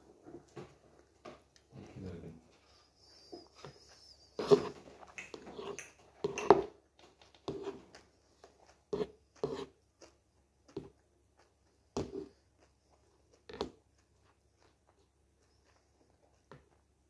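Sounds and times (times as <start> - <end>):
spoon scraping in bowl: 3.4 - 6.7, 8.9 - 9.8.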